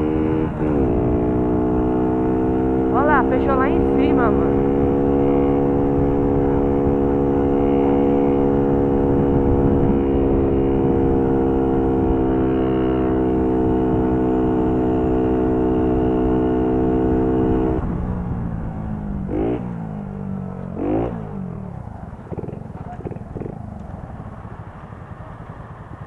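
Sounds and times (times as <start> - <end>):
moped engine pulling hard: 0.0 - 26.0
wind rush on microphone: 8.7 - 12.3.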